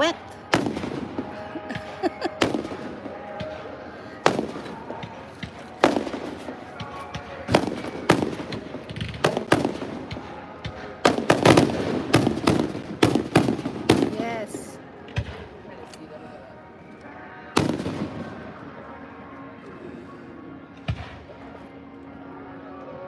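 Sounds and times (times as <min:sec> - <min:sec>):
fireworks bursting: 0:00.0 - 0:15.6, 0:17.6 - 0:18.6.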